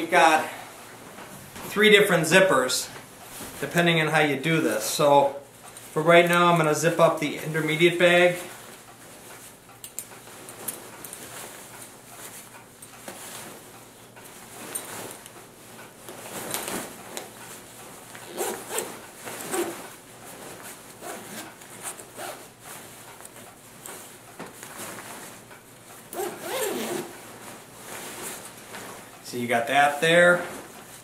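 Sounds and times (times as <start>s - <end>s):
nylon fabric rubbing: 14.3s - 25.4s, 26.0s - 29.1s
sleeping bag zipper: 18.1s - 19.8s, 21.0s - 22.5s, 26.1s - 27.2s.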